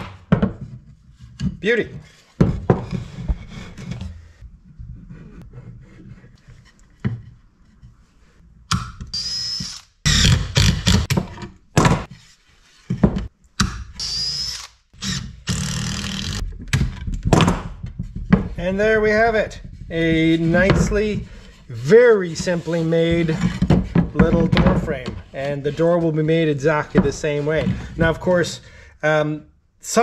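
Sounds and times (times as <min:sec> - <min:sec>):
cordless drill whining: 0:14.0 - 0:16.4.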